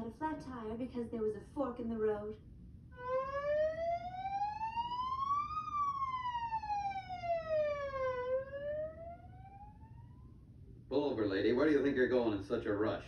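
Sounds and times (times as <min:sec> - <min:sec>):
police siren rising and falling: 0:03.0 - 0:10.6.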